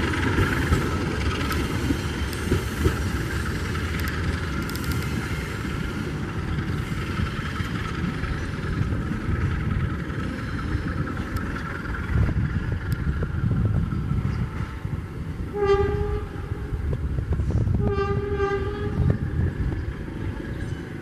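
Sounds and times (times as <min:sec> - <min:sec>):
train rumbling: 0:00.0 - 0:21.0
train horn blasts: 0:15.5 - 0:16.8, 0:17.8 - 0:19.2.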